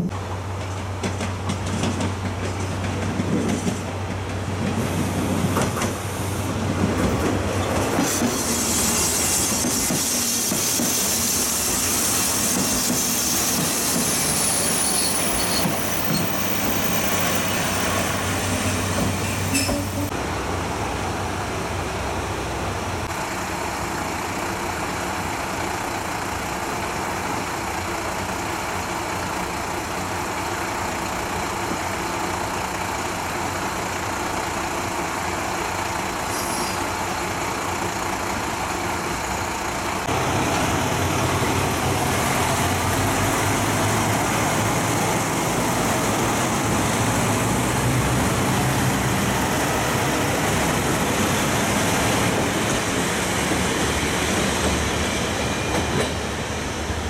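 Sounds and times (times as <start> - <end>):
train brakes squealing: 7.6 - 20.1, 36.1 - 37.1, 53.7 - 56.5.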